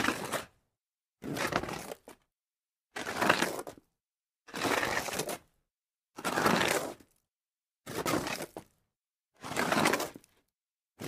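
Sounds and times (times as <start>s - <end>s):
gritty scrapes of soil: 6.2s - 7.2s.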